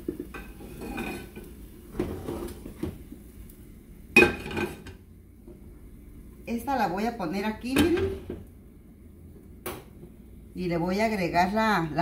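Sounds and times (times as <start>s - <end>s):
pots knocking and scraping on grates: 0.0s - 3.3s, 4.1s - 5.6s, 7.6s - 8.5s.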